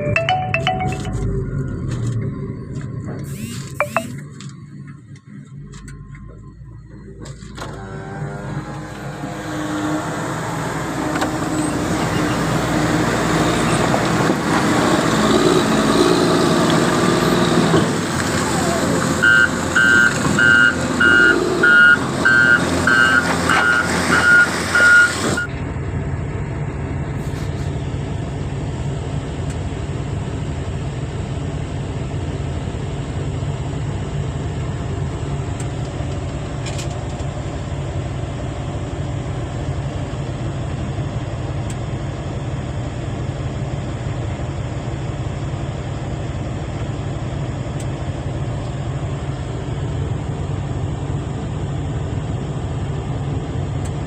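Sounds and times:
diesel engine drone: 0:00.0 - 0:54.0
reversing alarm beeping: 0:03.3 - 0:04.2, 0:19.2 - 0:25.5.

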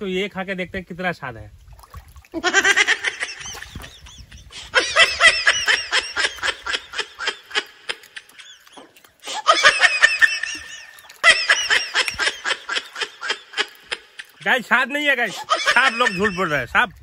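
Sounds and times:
person laughing: 0:02.4 - 0:14.4, 0:15.2 - 0:16.7.

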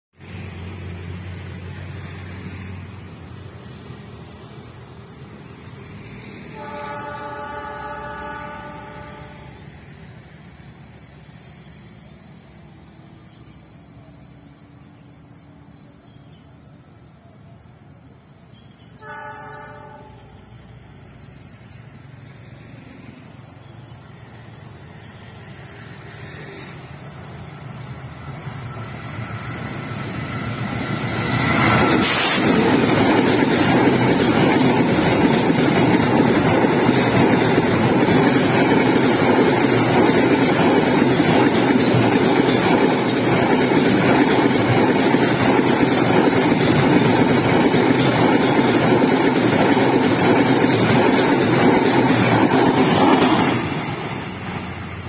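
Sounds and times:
train rumble: 0:00.2 - 0:55.0
train wheels on rails: 0:00.2 - 0:55.0
train horn: 0:06.4 - 0:09.8, 0:18.8 - 0:20.4.

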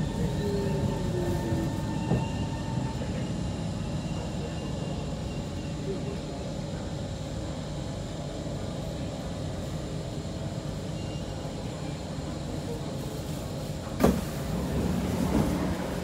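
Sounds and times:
train wheels rumbling: 0:14.1 - 0:16.0.

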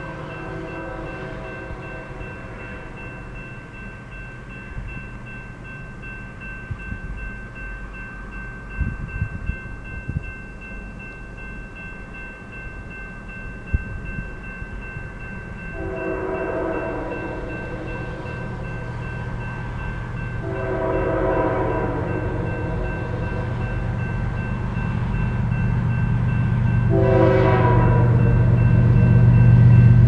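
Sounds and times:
locomotive air horn: 0:00.0 - 0:03.0, 0:15.7 - 0:18.3, 0:20.4 - 0:23.6, 0:26.9 - 0:28.6
crossing warning bell ringing: 0:00.0 - 0:30.0.

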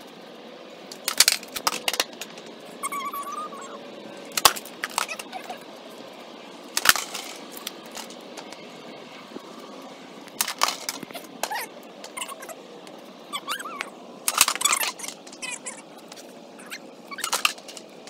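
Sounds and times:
skateboard clacking on concrete: 0:00.9 - 0:02.5, 0:04.3 - 0:05.3.

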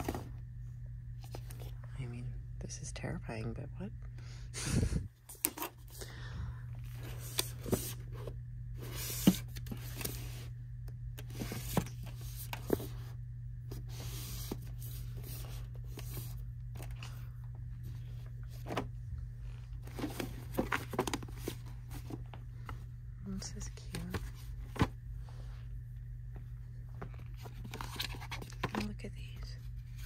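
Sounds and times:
books handled on metal shelf: 0:00.0 - 0:00.4, 0:06.8 - 0:10.4, 0:11.2 - 0:25.7
steady low hum: 0:00.0 - 0:30.0.

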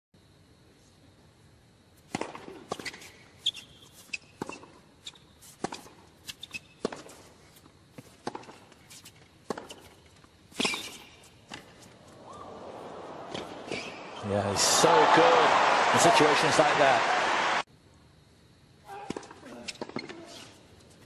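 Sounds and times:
shoe squeaks: 0:02.7 - 0:05.6, 0:06.2 - 0:06.9, 0:10.6 - 0:11.8, 0:19.6 - 0:20.6
tennis ball bounces: 0:08.0 - 0:08.6, 0:10.6 - 0:14.2.

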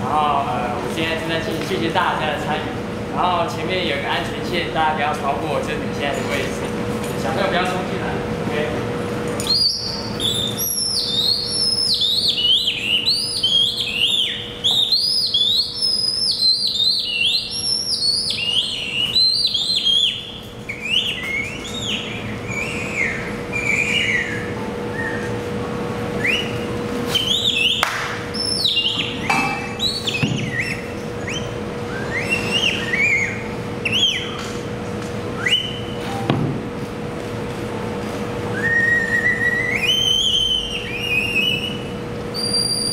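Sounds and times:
steady low hum: 0:00.0 - 0:42.9
high whistled chirps: 0:09.4 - 0:25.4, 0:26.2 - 0:34.5, 0:35.4 - 0:36.1, 0:38.5 - 0:42.9.

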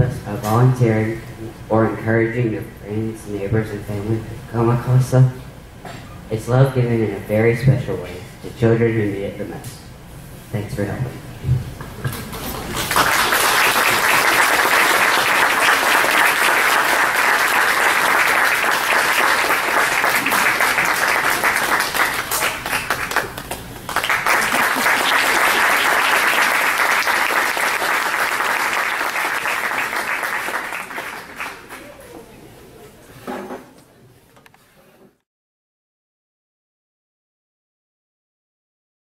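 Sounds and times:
audience applauding: 0:12.6 - 0:32.3.

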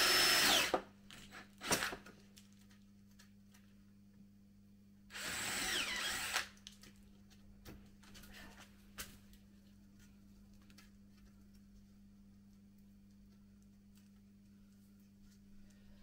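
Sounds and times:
power drill whining into wood: 0:00.0 - 0:00.8, 0:05.1 - 0:06.5.

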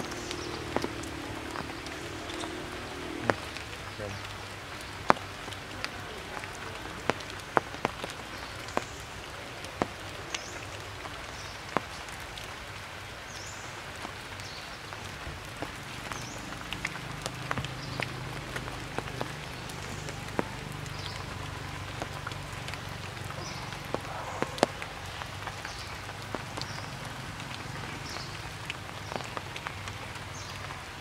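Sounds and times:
rain hiss: 0:00.0 - 0:31.0
raindrop drip taps: 0:00.0 - 0:31.0.

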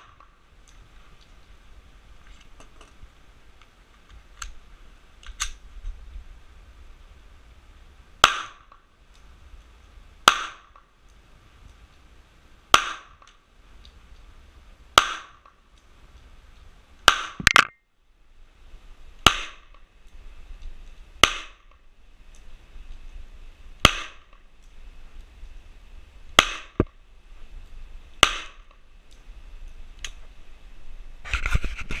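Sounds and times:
pistol shots: 0:26.4 - 0:26.8.

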